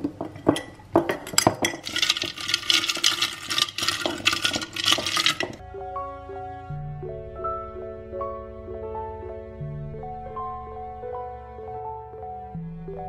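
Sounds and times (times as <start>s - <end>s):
metal capsules rattling against glass: 0.2s - 5.6s.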